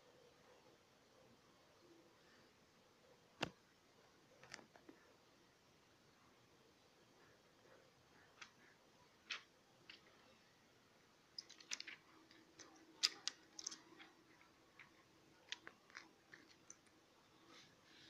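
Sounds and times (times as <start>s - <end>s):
fingers handling a phone: 11.4s - 17.6s.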